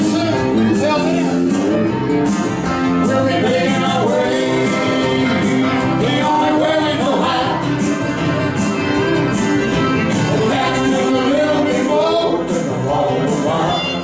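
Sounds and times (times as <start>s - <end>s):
man singing: 0.0s - 1.5s, 2.8s - 8.0s, 10.2s - 14.0s
live country band playing: 0.0s - 14.0s.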